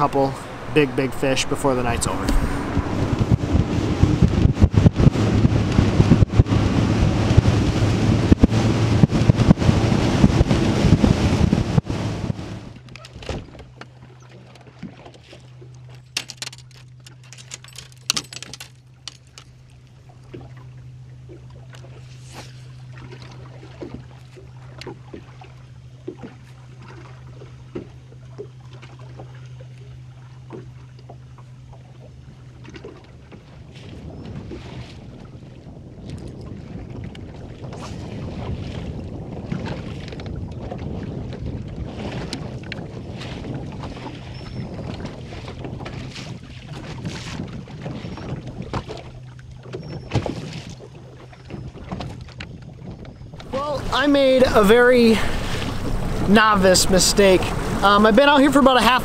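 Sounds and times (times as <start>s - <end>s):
heavy wind: 0.0s - 13.6s, 33.2s - 59.0s
hull hitting waves: 0.0s - 29.6s, 32.4s - 52.4s, 53.2s - 59.0s
electric trolling motor hum: 0.0s - 34.4s, 53.2s - 59.0s
outboard engine drone: 0.0s - 59.0s
water lapping at hull: 0.0s - 59.0s.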